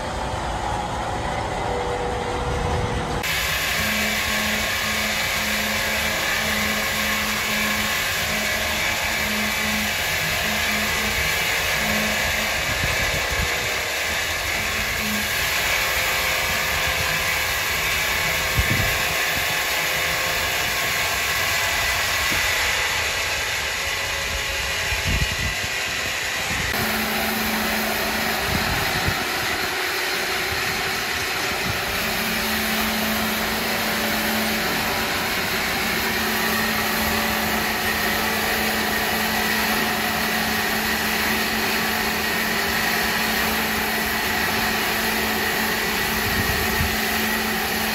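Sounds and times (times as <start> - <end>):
powered wood saw whirring: 0.0 - 47.9.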